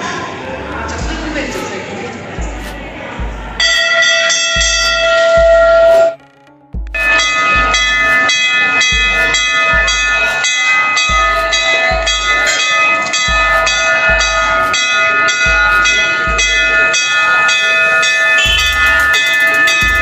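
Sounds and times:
deep bass thumps: 0.9 - 1.7, 2.4 - 8.1, 8.8 - 10.3, 11.1 - 12.5, 13.1 - 14.8, 15.4 - 16.9, 18.5 - 19.2
loud music with fast beat: 0.9 - 1.8, 2.4 - 20.0
sustained ringing tones: 3.4 - 20.0.

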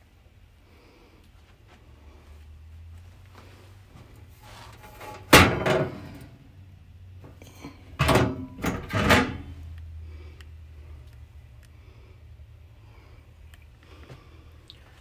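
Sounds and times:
faint low hum: 0.0 - 15.0
metal cover clanking: 4.8 - 6.3, 7.6 - 9.6.

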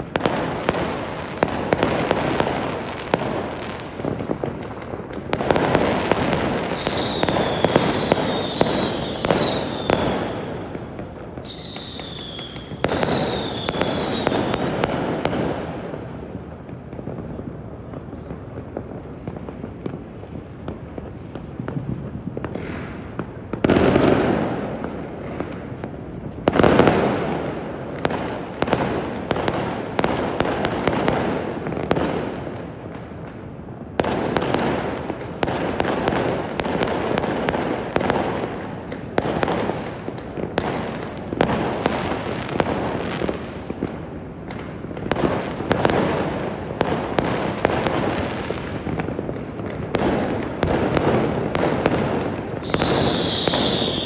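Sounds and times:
fireworks bangs: 0.0 - 54.0.

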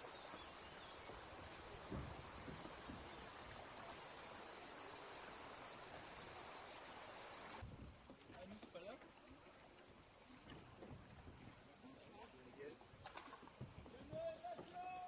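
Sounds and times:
cicadas buzzing: 0.0 - 15.0
soft low thump: 1.8 - 3.4.

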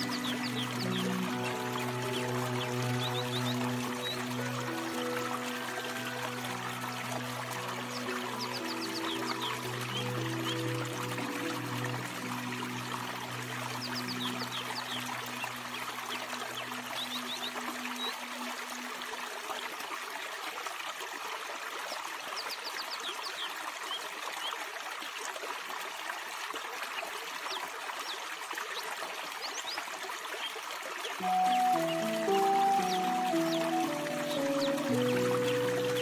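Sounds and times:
soft low music notes: 0.0 - 19.6, 31.2 - 36.0
stream trickling over stones: 0.0 - 36.0.

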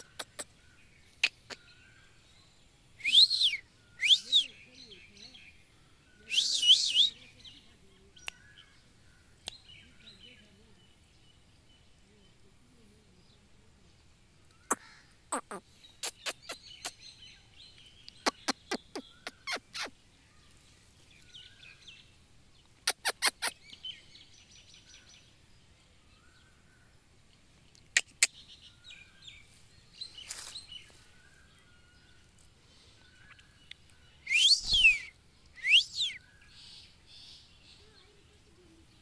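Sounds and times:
parakeet clicking calls: 0.0 - 0.5, 14.5 - 17.0, 18.1 - 19.9, 22.9 - 23.6, 27.8 - 28.4.

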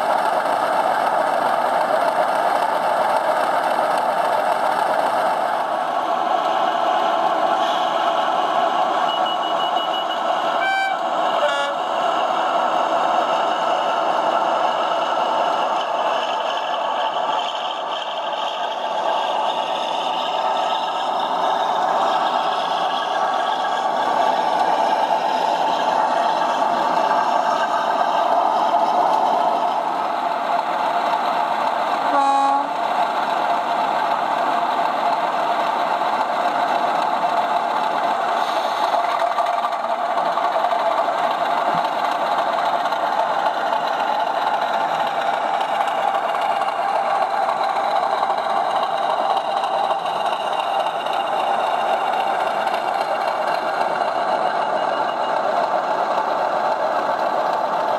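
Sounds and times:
model train running hum: 0.0 - 57.9
model train horn toot: 9.1 - 11.9, 32.0 - 32.8.

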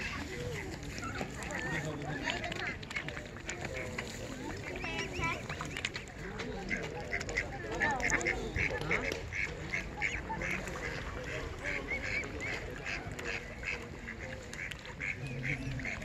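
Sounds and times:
ducks: 0.0 - 16.0.

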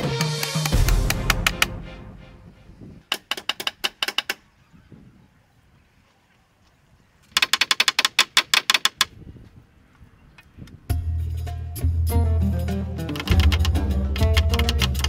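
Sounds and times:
hammer tapping wooden poles: 3.0 - 4.4, 7.3 - 9.1, 13.1 - 15.0.

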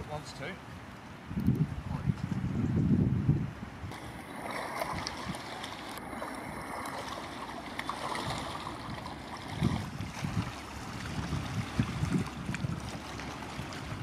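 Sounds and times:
wind across microphone: 1.2 - 7.0, 7.9 - 14.0
water lapping and splashing: 3.9 - 14.0.

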